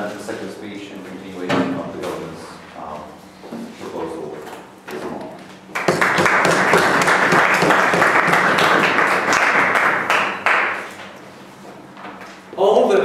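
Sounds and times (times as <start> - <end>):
audience applauding: 5.7 - 10.9.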